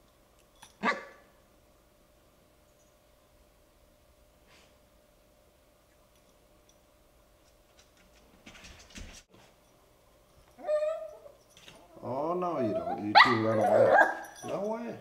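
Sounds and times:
dog barking high-pitched: 0.8 - 1.2, 12.8 - 14.4.

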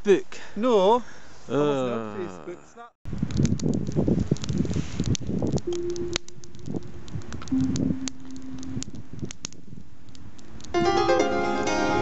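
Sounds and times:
campfire crackling and popping: 3.1 - 12.0
long low held tone: 5.7 - 9.0.

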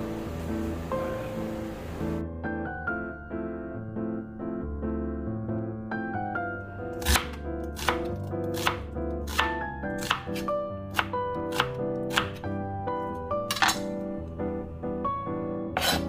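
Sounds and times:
piano music: 0.0 - 16.0
knife chopping on cutting board: 7.0 - 12.4, 13.5 - 13.9, 15.8 - 16.0.

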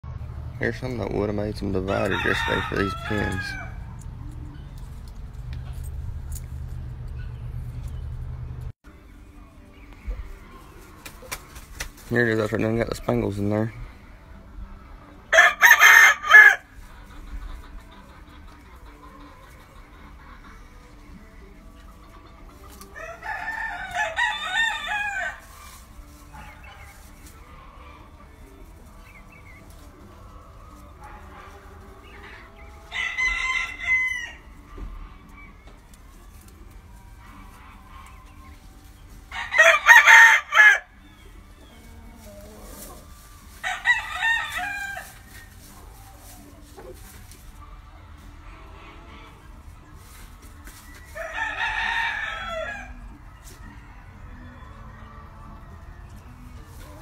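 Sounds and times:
rooster crowing: 1.9 - 3.9, 15.3 - 16.7, 23.0 - 25.4, 32.9 - 34.5, 39.3 - 41.0, 43.6 - 45.2, 51.2 - 55.6.

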